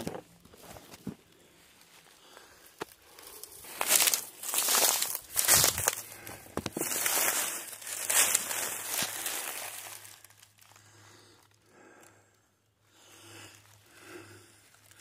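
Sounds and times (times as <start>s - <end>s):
crinkling and rustling: 0.0s - 10.8s.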